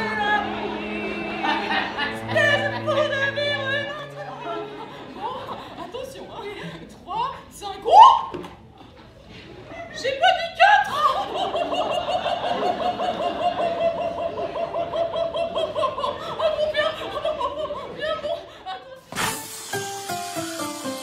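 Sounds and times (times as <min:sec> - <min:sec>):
plucked string music: 0:00.0 - 0:05.4, 0:19.7 - 0:21.0.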